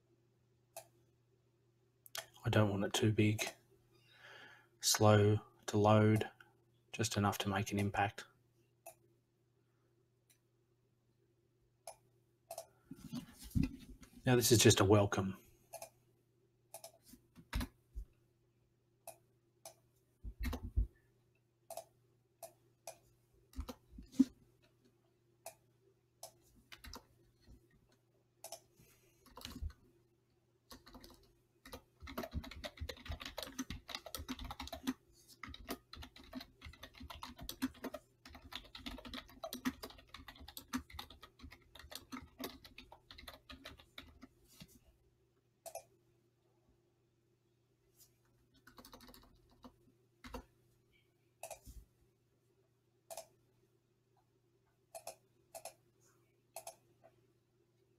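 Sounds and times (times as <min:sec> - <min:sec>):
typing on a keyboard: 0:26.2 - 0:27.1, 0:29.2 - 0:29.8, 0:30.7 - 0:44.3, 0:48.6 - 0:50.4.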